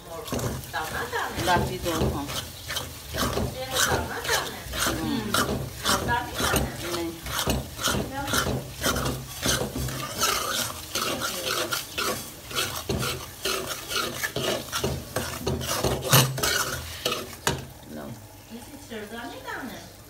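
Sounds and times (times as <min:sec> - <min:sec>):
metal spoon scraping a pan: 0:00.0 - 0:17.8
mixture sizzling in a pan: 0:00.0 - 0:20.0
spoon knocking on pan: 0:00.3 - 0:13.7.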